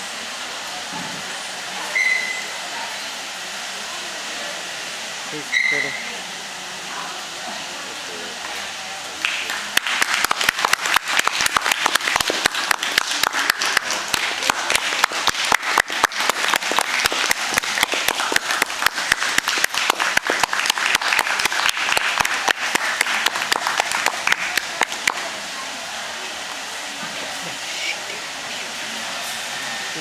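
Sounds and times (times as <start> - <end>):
audience applauding: 9.2 - 25.4.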